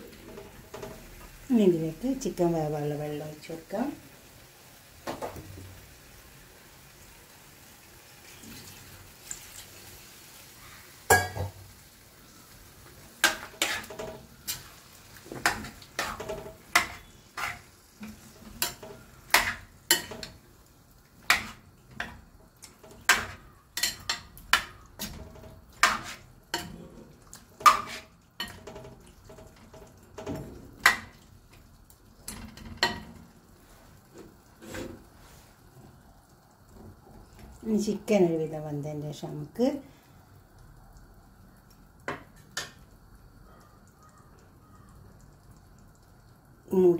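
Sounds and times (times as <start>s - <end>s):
metal spoon clinking against pan: 11.1s - 11.4s, 18.6s - 20.4s, 23.1s - 25.1s.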